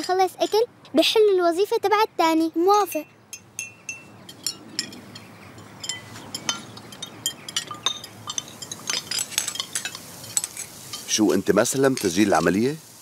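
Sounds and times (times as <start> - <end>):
cutlery clinking on plates: 3.4 - 12.6.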